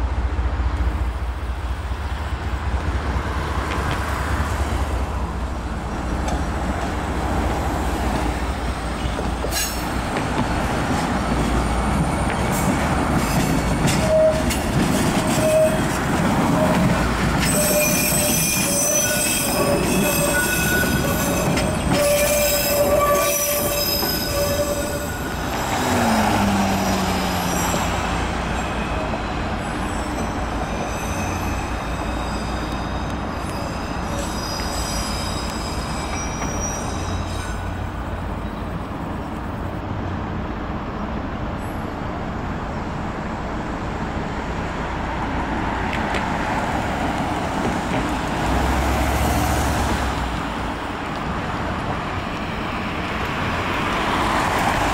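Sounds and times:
train wheels squealing on rails: 5.9s - 39.6s, 41.0s - 42.1s.

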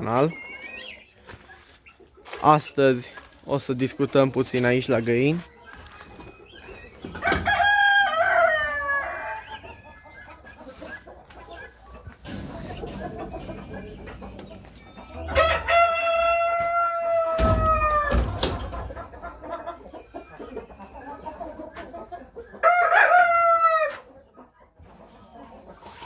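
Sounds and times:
hens clucking softly: 0.2s - 26.0s
rooster crowing: 7.2s - 9.4s, 15.2s - 18.2s, 22.6s - 24.0s.

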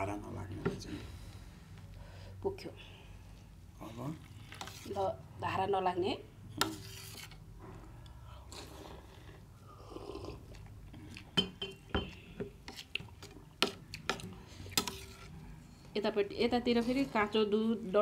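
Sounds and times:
metal spoon scraping a plate: 6.6s - 7.4s, 14.7s - 15.4s
eating sounds: 8.4s - 11.4s
glass jar clinking: 11.4s - 12.1s.

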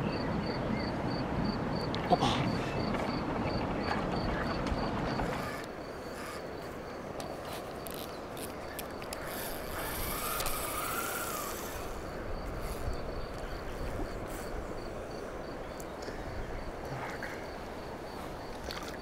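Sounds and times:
outdoor background hiss: 0.0s - 19.0s
fishing reel ratchet clicks: 9.1s - 11.9s.

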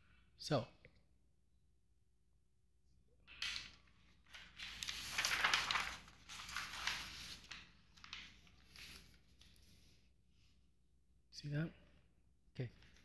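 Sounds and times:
paper sheets rustling: 3.3s - 10.0s, 12.7s - 13.0s.

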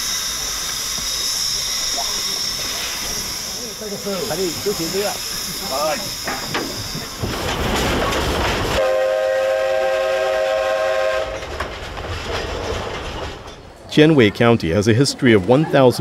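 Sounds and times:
steam locomotive hissing: 0.0s - 13.7s
train running noise: 0.0s - 16.0s
steam whistle blowing: 8.8s - 11.4s.

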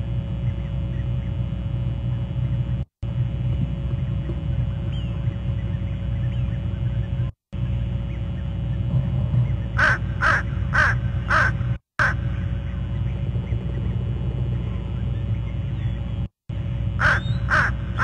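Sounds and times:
steady low rumble: 0.0s - 18.0s
crow cawing: 9.8s - 12.5s, 17.0s - 18.0s.

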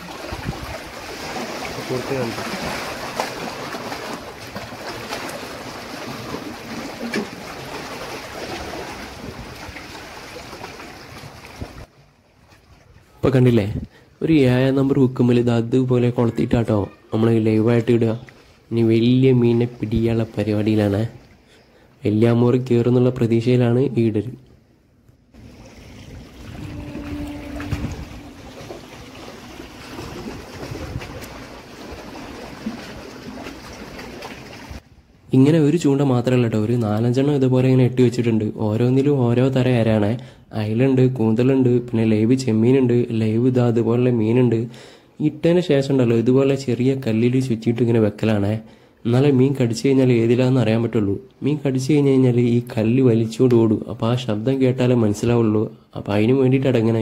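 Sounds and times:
sea water washing against rocks: 0.0s - 11.9s, 25.4s - 34.8s
wind on microphone: 0.1s - 0.9s, 25.4s - 32.2s.

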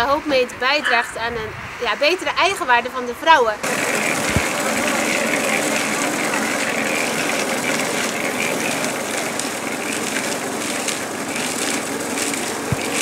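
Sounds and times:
concrete mixer running: 3.6s - 13.0s.

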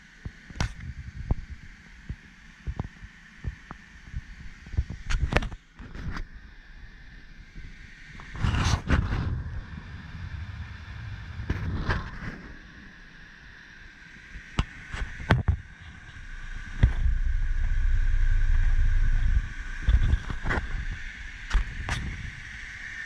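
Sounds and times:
wind buffeting microphone: 7.5s - 12.8s, 14.6s - 22.8s.

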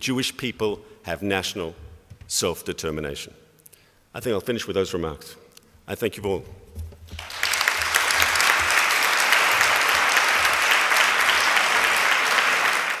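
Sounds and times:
large audience applauding: 7.2s - 13.0s.

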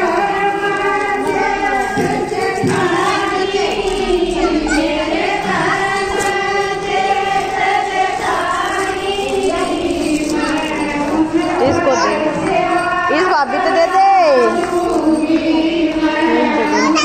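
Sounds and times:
group of voices singing: 0.0s - 17.0s.

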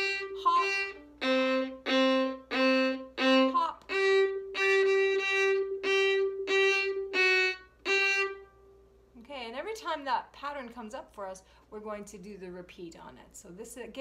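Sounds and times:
solo violin short bow strokes: 0.0s - 8.6s.

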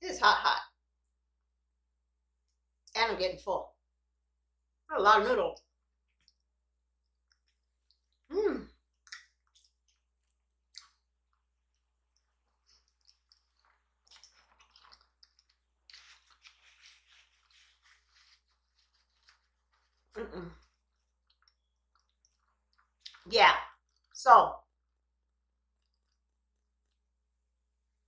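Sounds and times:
chewing noodles: 6.0s - 24.2s, 25.6s - 27.1s
wet mouth clicks: 8.9s - 10.1s, 10.7s - 11.0s.

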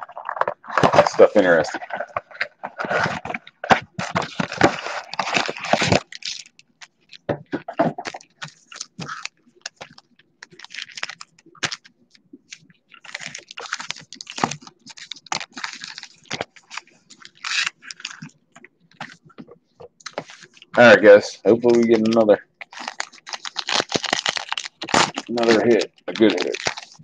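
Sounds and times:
wrappers crinkling: 0.0s - 19.4s, 20.0s - 27.0s
cardboard box tearing: 0.2s - 6.3s.

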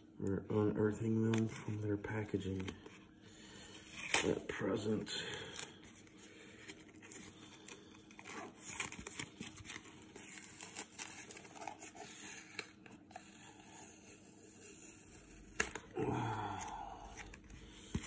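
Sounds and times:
tape peeling off cardboard: 8.2s - 15.9s.

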